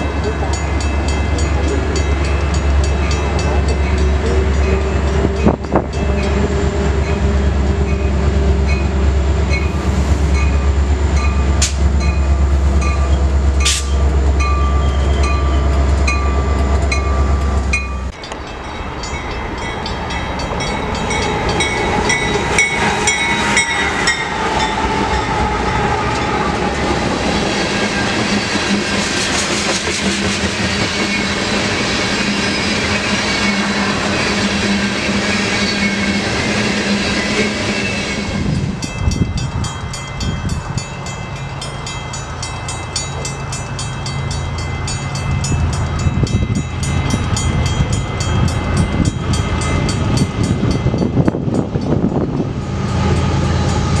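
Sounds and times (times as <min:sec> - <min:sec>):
diesel locomotive engine: 0:00.0 - 0:54.0
train wheels clattering on rails: 0:10.3 - 0:54.0.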